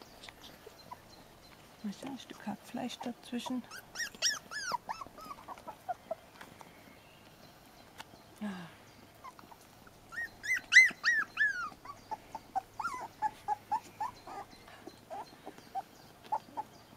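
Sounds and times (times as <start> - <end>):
puppies whimpering and squealing: 0.5 - 1.5, 2.8 - 6.3, 9.2 - 16.9.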